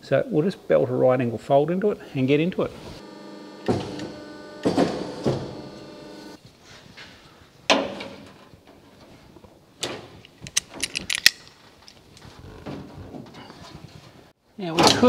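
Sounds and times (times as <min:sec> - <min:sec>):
locking pliers clicking: 0:10.2 - 0:11.6.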